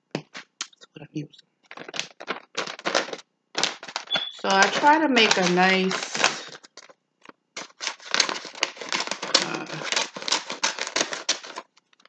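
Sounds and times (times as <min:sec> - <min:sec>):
paper crinkling: 0:01.6 - 0:12.0
scissors snipping paper: 0:02.6 - 0:06.9, 0:07.6 - 0:11.7.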